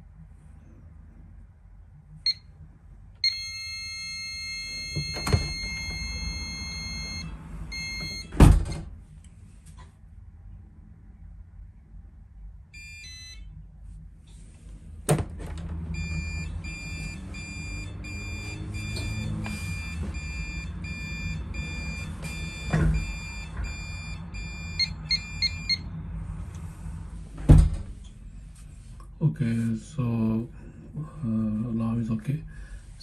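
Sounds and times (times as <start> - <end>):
alarm keypad high beeps: 3.2 - 8.3, 16.0 - 25.8
quick key beeps: 4.4 - 8.3, 16.0 - 25.8
door clunk: 4.9 - 6.1, 22.6 - 23.7, 27.4 - 28.0.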